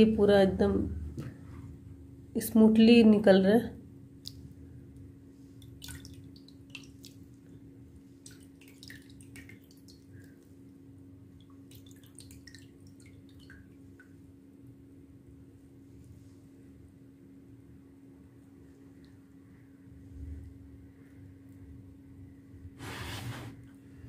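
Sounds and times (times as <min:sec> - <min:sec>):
water dripping into a tub: 0:04.2 - 0:14.5, 0:18.9 - 0:19.4.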